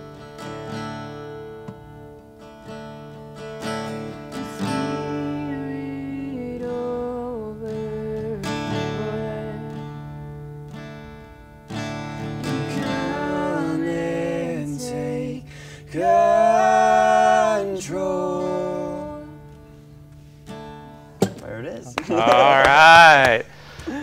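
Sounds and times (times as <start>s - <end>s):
acoustic guitar: 0.0s - 24.0s
person singing: 4.4s - 9.9s, 12.4s - 19.4s.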